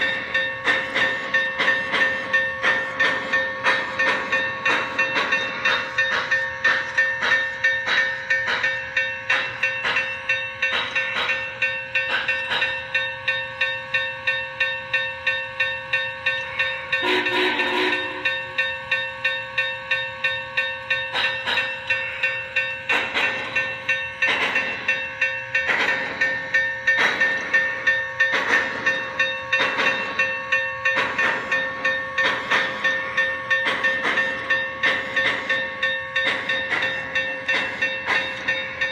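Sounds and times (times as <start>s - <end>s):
model steam locomotive chuffing: 0.0s - 38.9s
running train hum: 0.0s - 38.9s.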